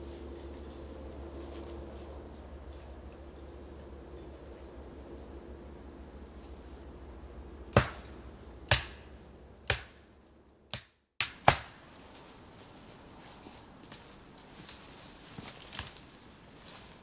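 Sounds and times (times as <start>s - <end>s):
hand tool striking wood: 7.7s - 8.1s, 8.7s - 10.0s.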